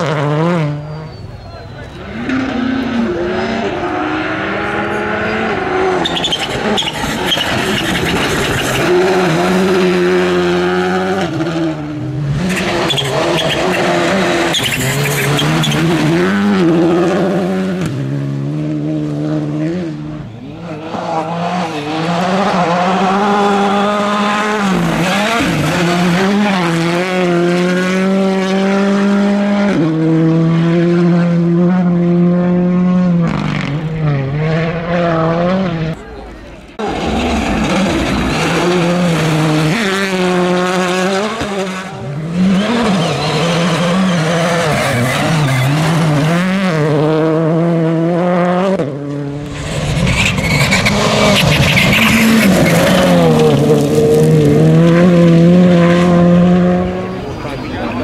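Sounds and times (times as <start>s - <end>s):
rally car engines revving: 0.0s - 58.0s
gravel crunching under tyres: 49.5s - 55.0s.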